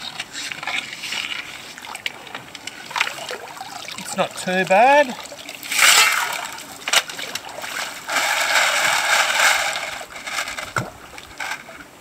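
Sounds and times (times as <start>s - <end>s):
water pouring and splashing: 0.0s - 12.0s
stones rattling in bucket: 4.0s - 11.9s.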